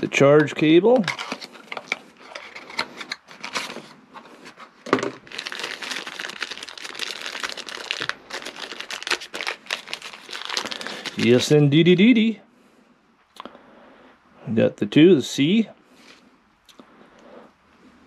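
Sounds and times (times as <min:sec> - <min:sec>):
plastic bag crinkling: 0:00.6 - 0:11.6.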